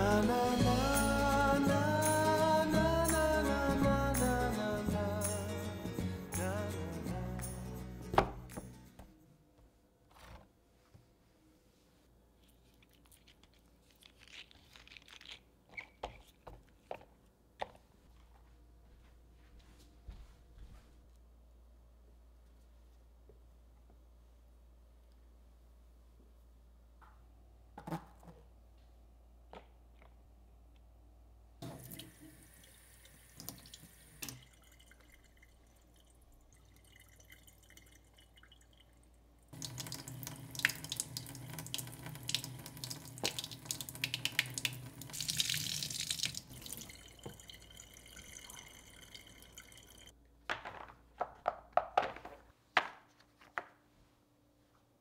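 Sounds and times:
faucet water splashing on a mat: 39.6 - 48.5.

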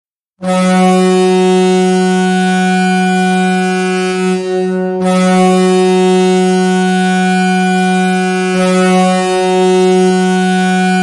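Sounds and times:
goal horn blast: 0.4 - 2.9.

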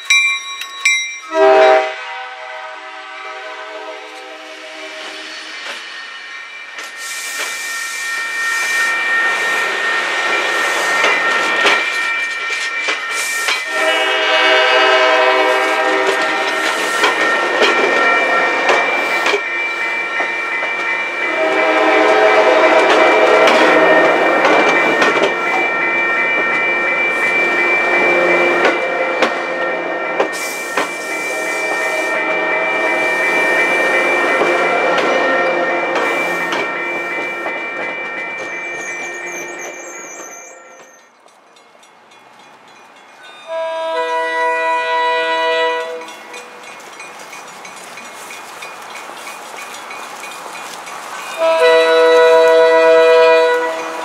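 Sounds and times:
train horn: 1.3 - 5.3, 10.8 - 19.4, 21.1 - 25.6, 27.4 - 37.6, 43.4 - 46.6, 51.2 - 54.0
train wheels clacking: 4.1 - 54.0
high squeal: 4.5 - 14.2, 16.8 - 41.2.

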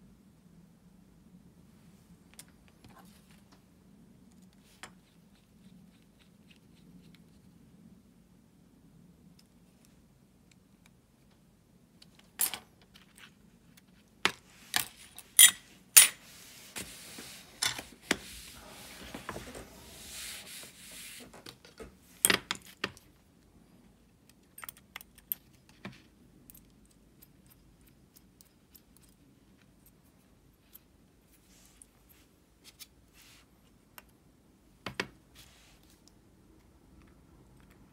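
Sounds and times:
soft rustle: 12.8 - 22.2, 29.5 - 33.9, 35.2 - 36.2.

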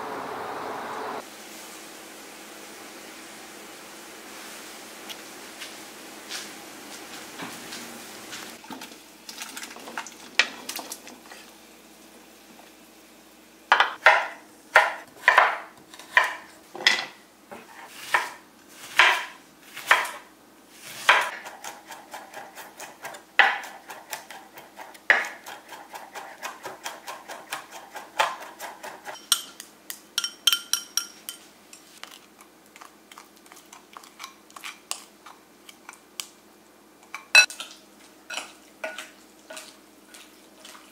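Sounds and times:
knife chopping on wooden board: 13.7 - 16.4, 18.0 - 20.2, 21.0 - 29.1
dishes clinking: 30.2 - 31.5.

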